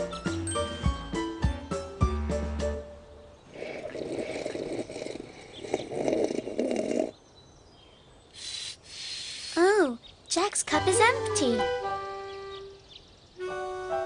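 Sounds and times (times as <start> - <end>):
music: 0.0 - 3.4, 10.8 - 12.8, 13.4 - 14.0
slurping through a straw: 3.5 - 7.2.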